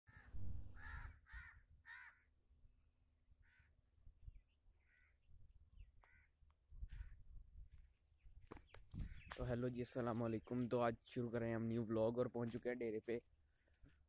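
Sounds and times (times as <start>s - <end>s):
crows cawing: 0.1s - 2.3s, 3.4s - 3.8s, 4.8s - 5.2s, 6.0s - 7.2s
low rumble: 0.3s - 0.8s.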